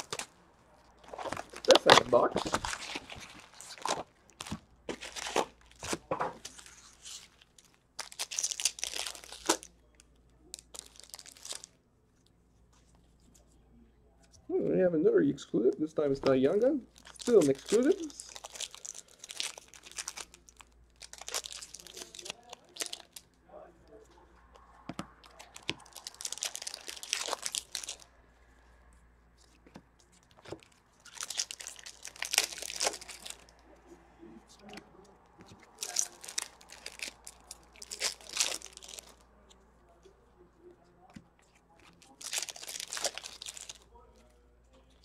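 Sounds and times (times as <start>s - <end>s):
cards being handled: 1.0s - 9.7s
card pack wrappers tearing: 1.1s - 7.4s, 8.0s - 9.7s, 17.0s - 23.2s, 25.2s - 28.1s, 30.5s - 33.5s, 35.6s - 39.2s, 41.8s - 43.8s.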